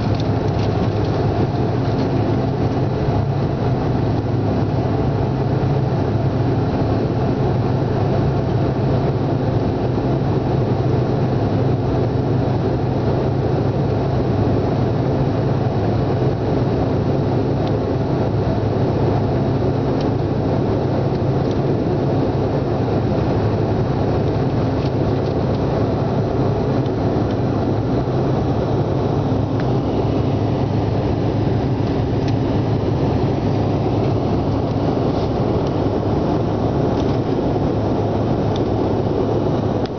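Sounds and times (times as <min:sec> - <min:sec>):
airliner engines drone: 0:00.0 - 0:39.9
rushing air: 0:20.3 - 0:39.9.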